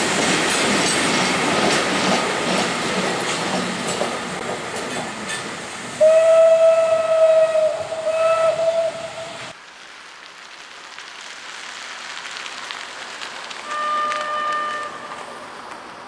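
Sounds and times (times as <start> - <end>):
steady hiss: 0.0 - 16.0
locomotive horn greeting: 6.0 - 9.5, 13.6 - 15.3
train horn: 6.0 - 9.5, 13.6 - 15.4.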